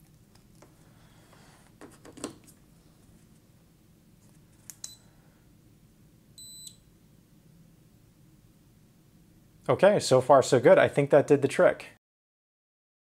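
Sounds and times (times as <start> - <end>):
short high beep: 6.4 - 6.8.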